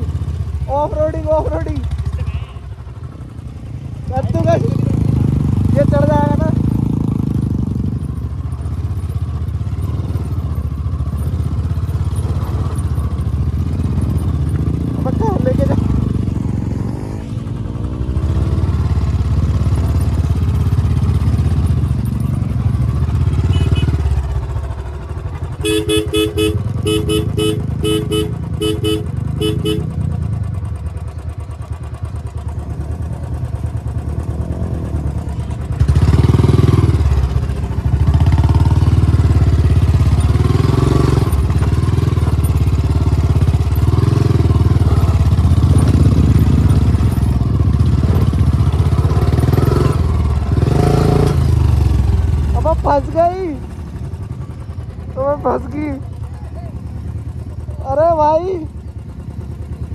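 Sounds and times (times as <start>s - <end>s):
motorcycle engine revving: 0.0s - 59.9s
short horn beeps: 23.4s - 24.1s, 25.6s - 29.9s.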